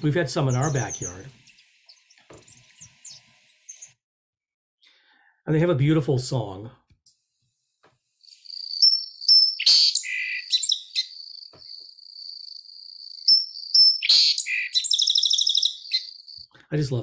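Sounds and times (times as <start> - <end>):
song sparrow singing: 0.0 - 4.0, 8.2 - 16.5.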